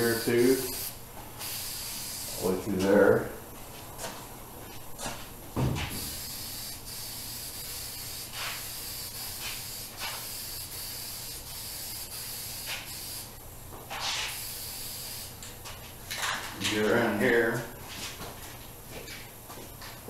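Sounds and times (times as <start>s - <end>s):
spray paint can hissing: 0.0s - 2.4s, 5.9s - 13.3s, 14.1s - 15.4s
thump: 5.6s - 6.0s.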